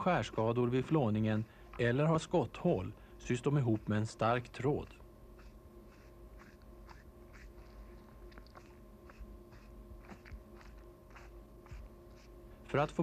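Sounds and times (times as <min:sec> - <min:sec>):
steady hum: 0:00.0 - 0:13.0
needle scratching through pelt: 0:03.4 - 0:12.4.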